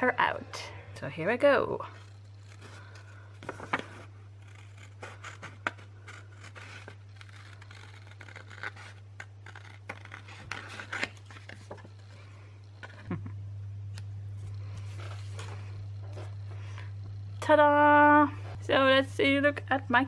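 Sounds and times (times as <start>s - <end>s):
steady low hum: 0.0s - 20.0s
scissors snipping paper: 1.9s - 12.0s.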